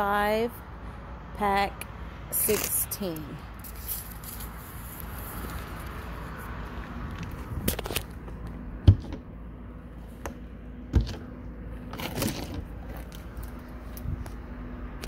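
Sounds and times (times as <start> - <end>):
metal door rustling scrape: 11.9 - 13.1.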